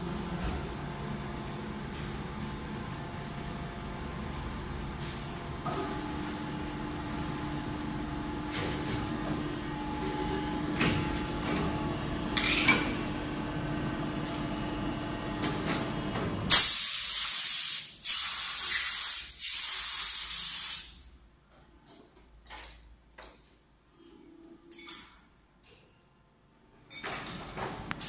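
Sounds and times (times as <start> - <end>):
compressed air hissing: 16.5 - 21.1.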